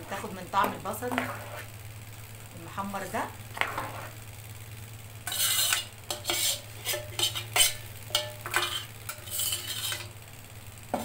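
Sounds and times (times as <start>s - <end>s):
metal ladle scraping pot: 0.0s - 1.8s, 3.5s - 4.2s, 5.2s - 10.2s
steady low hum: 0.0s - 11.0s.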